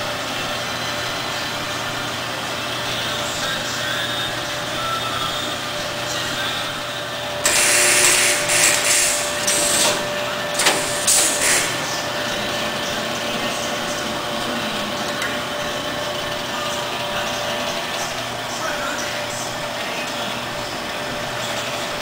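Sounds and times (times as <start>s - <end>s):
machine humming: 0.0s - 22.0s
loud bursts of hiss: 7.4s - 10.0s, 10.6s - 11.9s.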